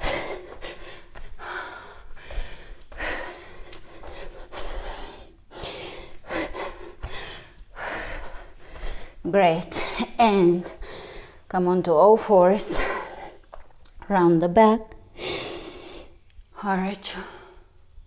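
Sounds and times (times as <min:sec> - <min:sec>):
woman breathing hard: 0:00.0 - 0:11.5, 0:15.0 - 0:16.2.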